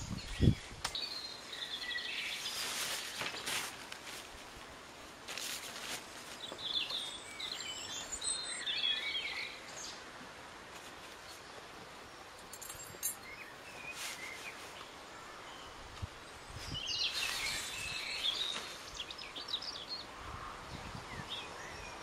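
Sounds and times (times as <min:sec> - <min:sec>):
tarp rustling on grass: 0:01.9 - 0:08.2, 0:13.6 - 0:15.1, 0:15.9 - 0:19.4
birds chirping: 0:06.2 - 0:10.0, 0:11.2 - 0:22.0.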